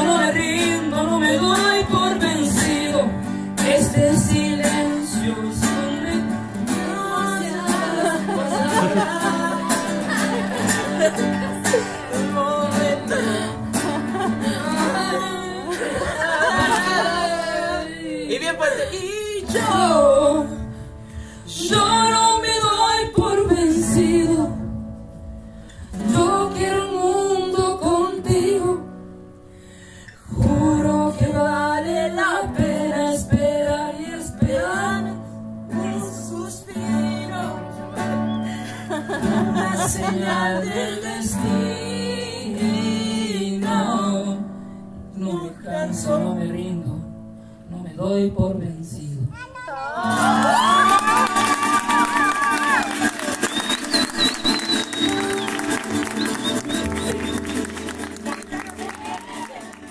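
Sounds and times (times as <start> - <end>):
person singing: 0.0 - 20.7, 39.0 - 44.4
acoustic guitar: 0.0 - 59.9.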